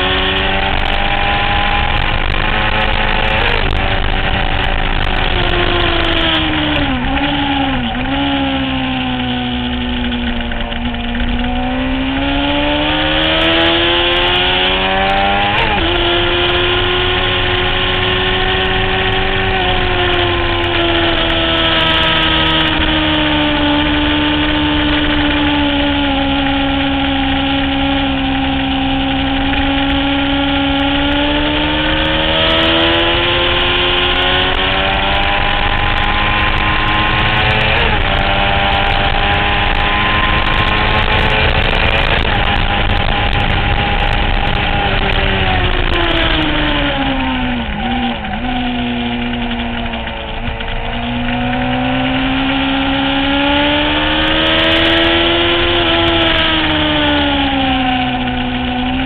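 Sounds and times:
motorcycle engine running hard: 0.0 - 59.0
wind noise: 0.0 - 59.0.

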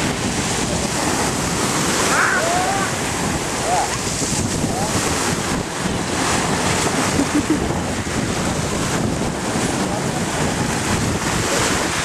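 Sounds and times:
sea waves washing: 0.0 - 12.0
wind buffeting microphone: 0.0 - 12.0.

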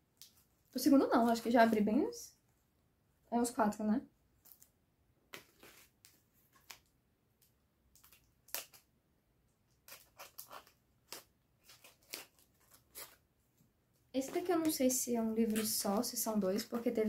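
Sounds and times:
cardboard rustling and scraping: 5.4 - 6.7.

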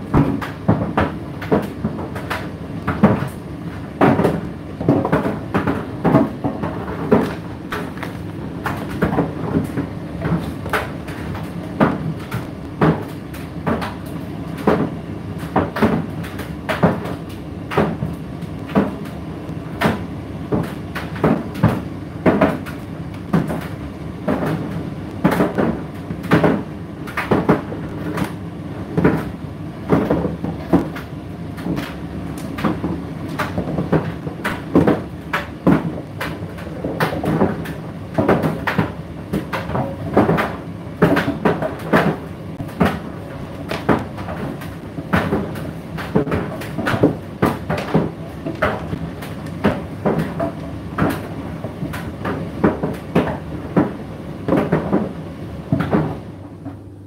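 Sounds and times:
knocks of tumbling load: 0.0 - 56.8.

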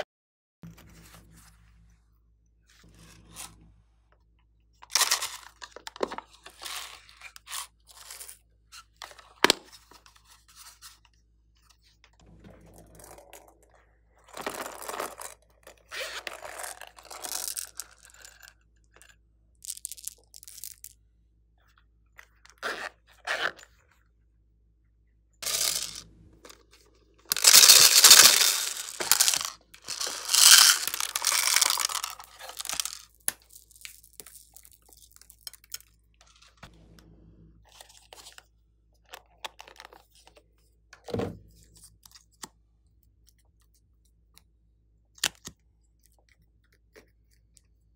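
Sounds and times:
plastic cases clicking and crackling: 27.2 - 33.4.

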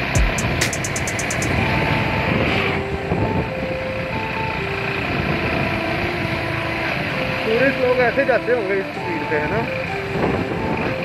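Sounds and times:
wind rushing: 0.0 - 4.3
motorcycle engine: 0.0 - 11.0.

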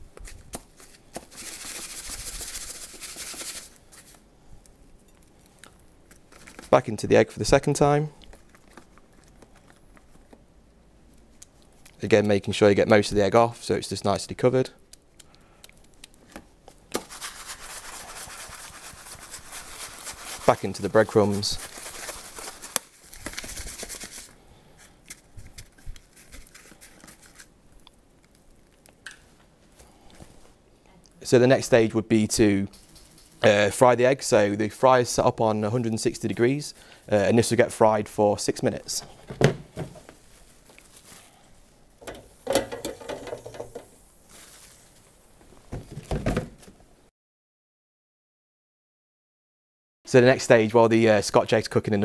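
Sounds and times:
rolling egg in breadcrumbs: 0.2 - 7.4, 14.9 - 28.9
hot oil sizzling and bubbling: 42.0 - 44.1.

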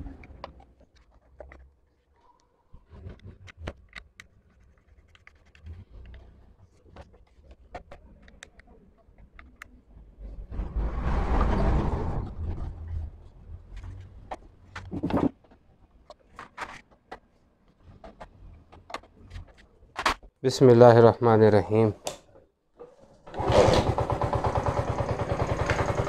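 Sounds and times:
plastic and metal parts clicking: 3.0 - 6.3, 17.9 - 20.2.

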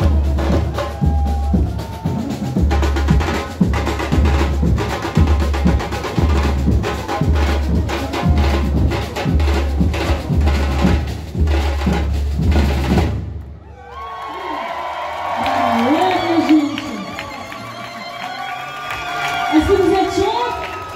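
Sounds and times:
fast snare drum rattle: 0.0 - 13.2
bass drums beating: 0.0 - 13.6.

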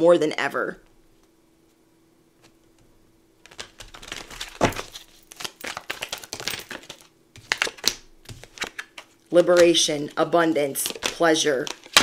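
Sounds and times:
cards being shuffled: 2.4 - 12.0.

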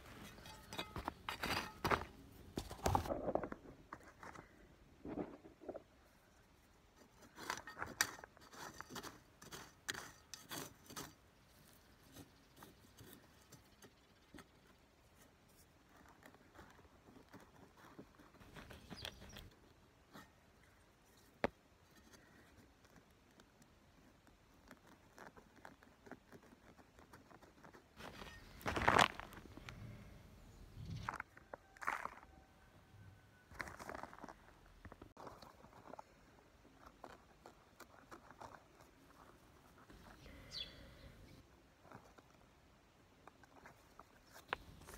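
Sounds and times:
metal trowel scraping stony soil: 0.0 - 4.3, 6.9 - 14.6, 28.0 - 29.6.

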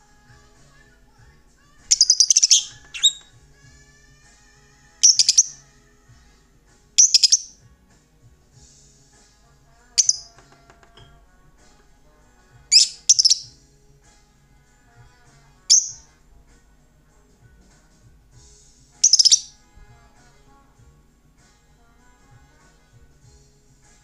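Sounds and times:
lovebird harsh chirping calls: 1.9 - 3.3, 5.0 - 5.6, 7.0 - 7.6, 10.0 - 10.3, 12.7 - 13.5, 15.7 - 16.1, 19.0 - 19.6.

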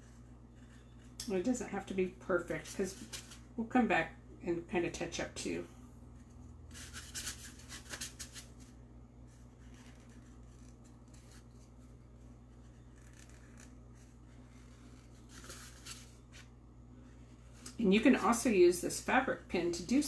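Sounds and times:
marker scratching on pumpkin: 9.3 - 11.6, 12.4 - 16.2.

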